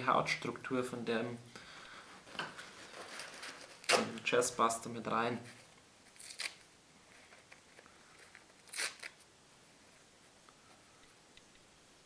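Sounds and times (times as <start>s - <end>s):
paper ripping: 2.7s - 4.2s, 6.1s - 6.6s, 7.2s - 9.2s.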